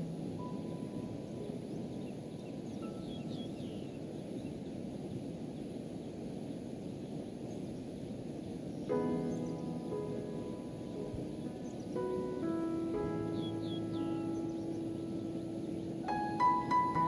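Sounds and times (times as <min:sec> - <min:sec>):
wind: 0:00.0 - 0:17.0
bird chirps: 0:00.4 - 0:04.6, 0:08.8 - 0:17.0.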